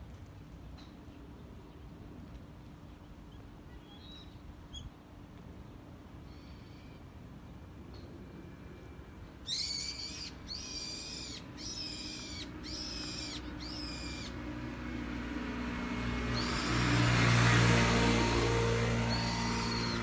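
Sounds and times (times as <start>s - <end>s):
shrill bird calls: 3.8s - 4.9s, 9.4s - 14.4s, 16.3s - 17.0s, 19.0s - 20.0s
passing vehicle: 10.3s - 20.0s.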